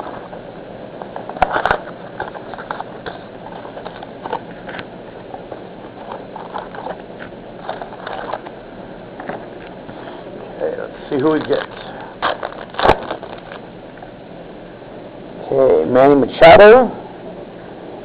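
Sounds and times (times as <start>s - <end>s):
card wrapper crinkling and rustling: 1.0s - 8.6s, 11.0s - 13.7s.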